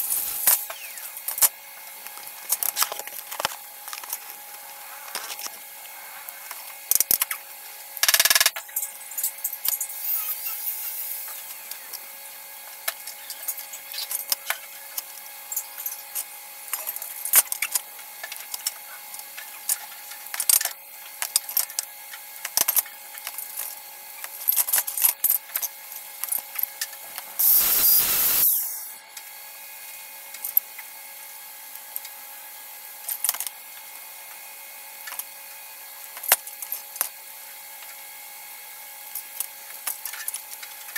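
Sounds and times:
steady hum: 0:00.0 - 0:21.7, 0:22.7 - 0:30.2
small power tool bursts: 0:27.4 - 0:29.0.

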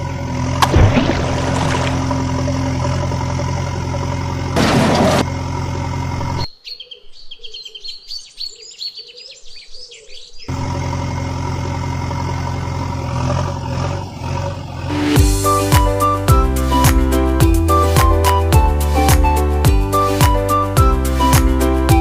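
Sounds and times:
engine idling hum: 0:00.0 - 0:06.5, 0:10.5 - 0:15.6
small birds chirping: 0:06.4 - 0:10.5.

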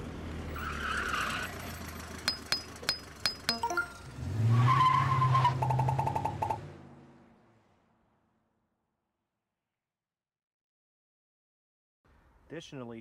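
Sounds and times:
tire screech: 0:00.0 - 0:02.8, 0:04.0 - 0:07.2
vehicle engine: 0:00.0 - 0:08.6.

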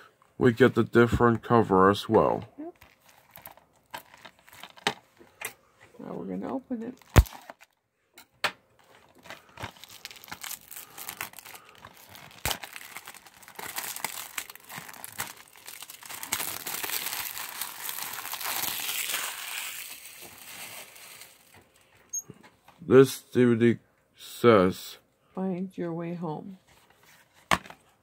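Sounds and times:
plastic shrink-wrap crinkling: 0:02.6 - 0:05.0, 0:06.9 - 0:07.8, 0:08.8 - 0:22.0.

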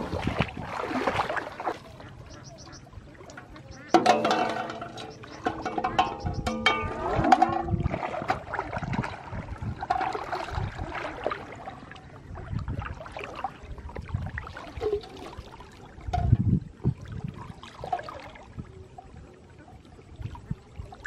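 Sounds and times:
legs swishing through water: 0:00.0 - 0:16.1
pond water sloshing and splashing: 0:00.0 - 0:21.0.

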